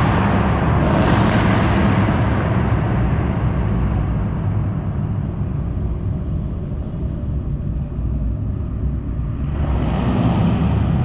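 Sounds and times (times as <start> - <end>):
car exhaust rumble: 0.0 - 11.0.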